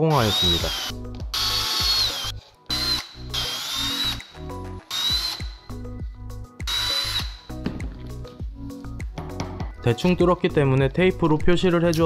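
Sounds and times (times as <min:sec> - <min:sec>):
cordless drill whining: 0:00.0 - 0:05.8, 0:06.7 - 0:07.5.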